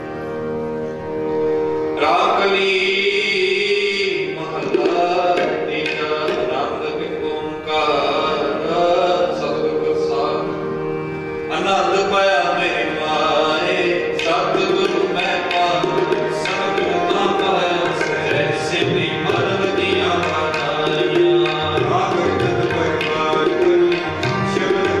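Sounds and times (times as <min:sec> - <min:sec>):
harmonium chords: 0:00.0 - 0:25.0
tabla strokes: 0:14.1 - 0:25.0.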